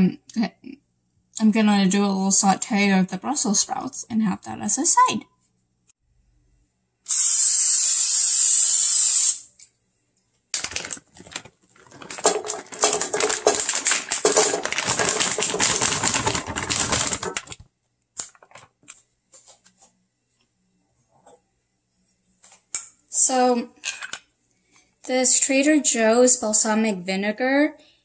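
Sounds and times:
cooking oil spray hissing: 7.1 - 9.5
sprouts rattling into a pan: 10.6 - 17.6.

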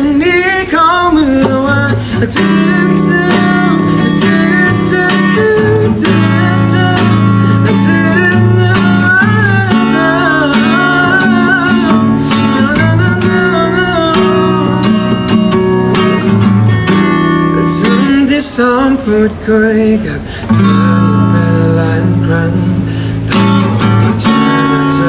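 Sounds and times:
man singing: 0.0 - 16.4, 17.1 - 25.0
acoustic guitar strumming: 0.0 - 25.0.

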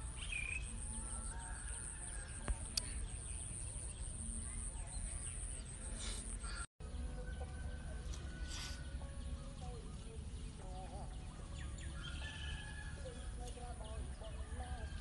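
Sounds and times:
birds and poultry calling: 0.0 - 15.0.

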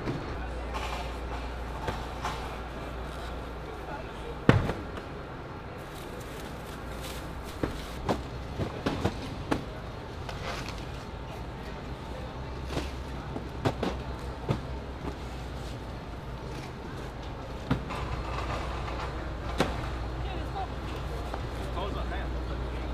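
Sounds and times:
low machinery hum: 0.0 - 22.9
boxes knocking and thumping: 4.4 - 5.0, 6.9 - 9.8, 12.6 - 15.4.

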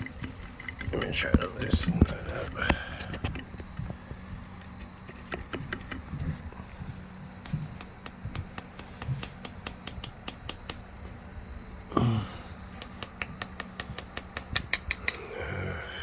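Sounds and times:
person grunting: 11.9 - 12.5.

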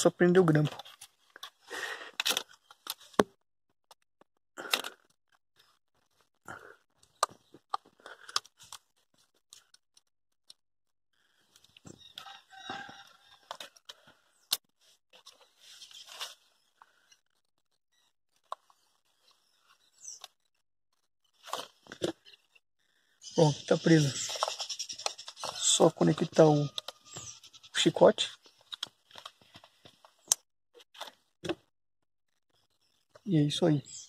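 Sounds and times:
clicks and scrapes of clip: 0.7 - 3.2
drawn-out animal call: 23.2 - 28.0.

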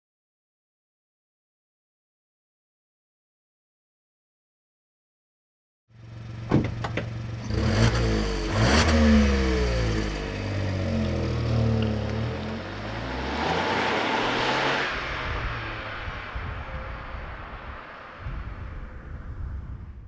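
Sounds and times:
car engine revving and accelerating: 7.3 - 19.0.

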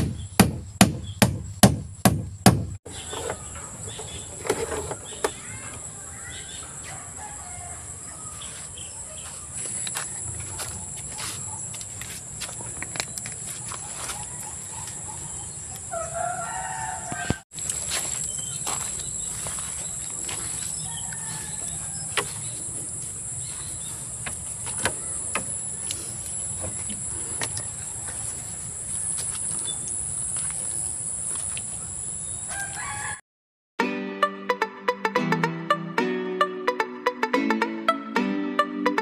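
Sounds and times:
rooster crowing: 6.5 - 8.7, 15.9 - 17.4, 20.7 - 22.5, 32.5 - 33.2.

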